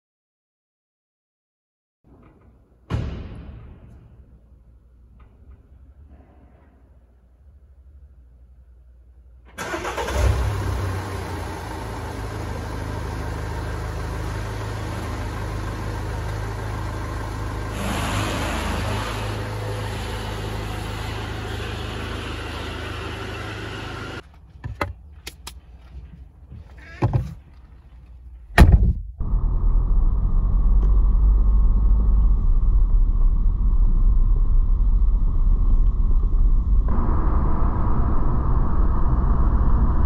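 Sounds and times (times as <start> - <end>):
car engine starting and idling: 9.4 - 24.8, 27.5 - 40.0.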